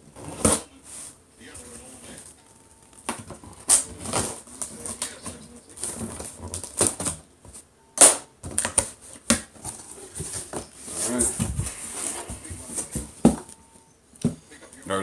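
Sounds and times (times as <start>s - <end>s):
cardboard flaps rustling: 8.5s - 13.5s.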